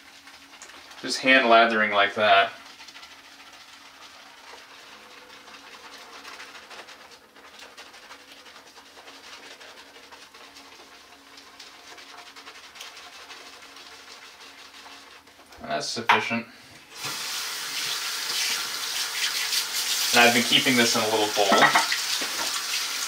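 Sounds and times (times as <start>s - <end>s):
lather squishing between hands: 2.5s - 15.6s.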